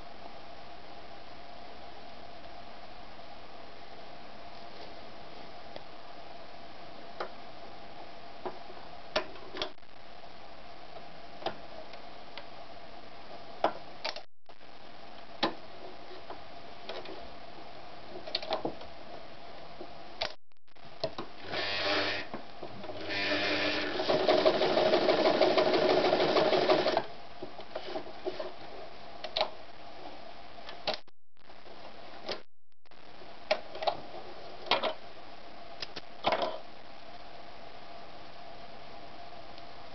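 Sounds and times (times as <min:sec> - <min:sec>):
sewing machine stitching: 0:21.4 - 0:27.1.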